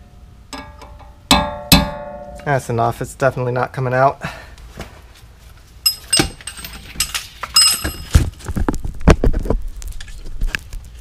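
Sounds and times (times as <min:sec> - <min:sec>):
metal hand tools clinking: 0:05.8 - 0:08.2.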